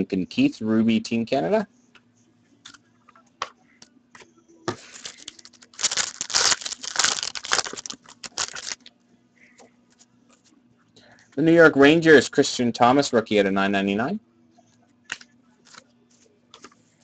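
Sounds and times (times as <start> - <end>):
foil wrapper tearing and crumpling: 4.9 - 8.8.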